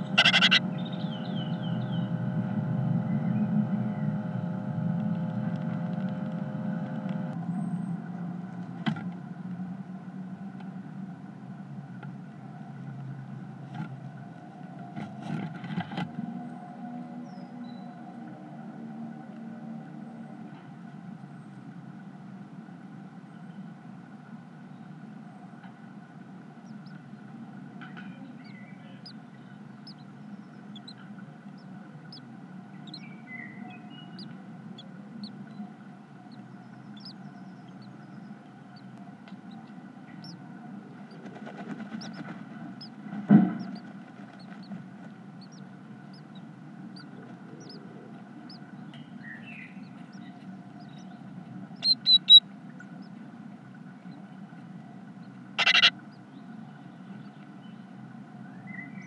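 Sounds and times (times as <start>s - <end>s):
adult bird high calls: 0.0s - 1.7s, 29.8s - 35.6s, 36.2s - 40.4s, 51.8s - 52.4s, 55.6s - 56.0s
chicks peeping: 0.0s - 2.2s, 26.6s - 53.2s, 55.2s - 56.3s
steady low hum: 0.0s - 59.0s
loud bump in nest box: 43.2s - 43.8s.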